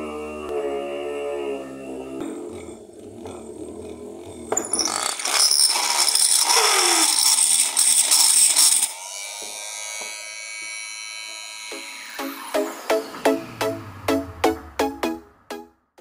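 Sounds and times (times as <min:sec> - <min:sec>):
drill boring into wood: 0:04.5 - 0:12.2.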